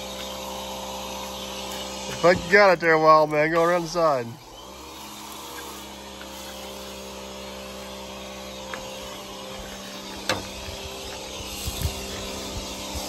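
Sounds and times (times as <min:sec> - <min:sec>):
pressure washer motor humming: 0:00.0 - 0:13.0.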